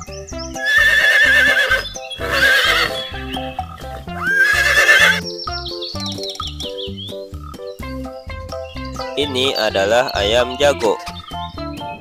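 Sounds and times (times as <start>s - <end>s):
horse whinnying: 0.6s - 3.4s, 4.0s - 5.2s
children's music with steady beat: 2.9s - 4.4s, 5.2s - 12.0s.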